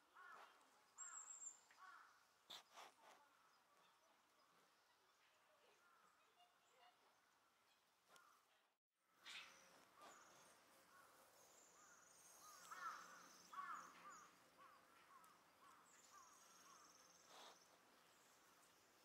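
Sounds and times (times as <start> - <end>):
faint animal chirps: 15.6 - 17.8.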